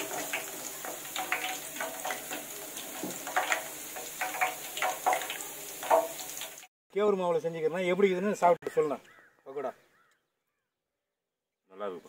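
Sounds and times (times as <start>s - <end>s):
leaves sizzling in hot oil: 0.0s - 6.7s.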